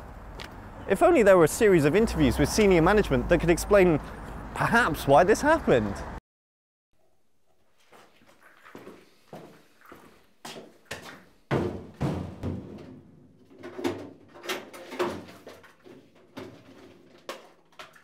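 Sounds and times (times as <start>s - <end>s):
knocks and thumps: 11.0s - 17.5s.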